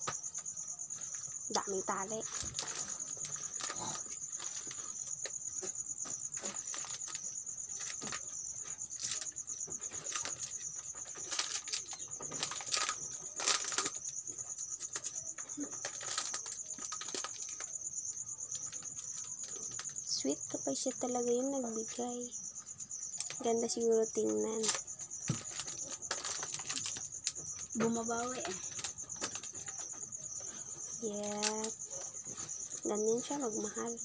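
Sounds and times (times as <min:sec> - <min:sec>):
crickets chirping: 0:00.0 - 0:34.0
wrapping paper rustling: 0:10.0 - 0:14.0, 0:14.9 - 0:17.7, 0:24.6 - 0:29.7.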